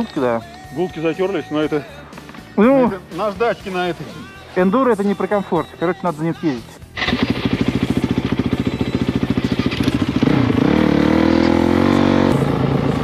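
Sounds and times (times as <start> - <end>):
motorcycle engine revving: 7.0 - 13.0.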